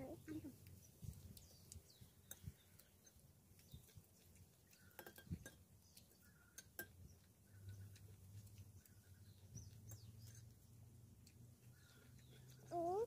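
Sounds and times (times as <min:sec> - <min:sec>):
metal spoon clinking on plate: 0:04.8 - 0:05.6, 0:06.6 - 0:07.0.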